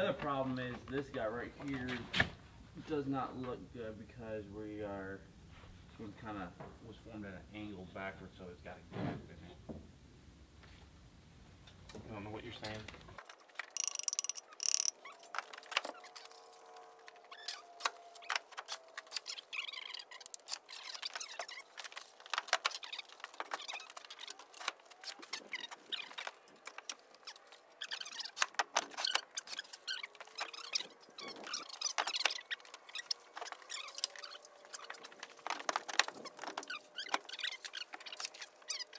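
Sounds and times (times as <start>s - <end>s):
faint drawn-out squeak: 12.5s - 38.9s.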